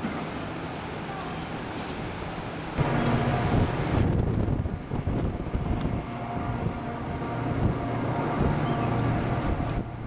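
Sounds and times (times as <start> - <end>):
steady low hum: 2.7 - 10.0
wind buffeting microphone: 2.8 - 10.0.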